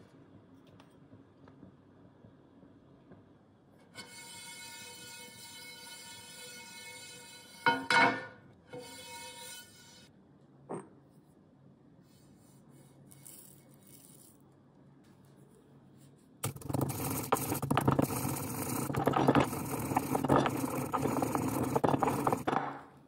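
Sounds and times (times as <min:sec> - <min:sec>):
pestle grinding seeds in mortar: 0:16.4 - 0:23.0.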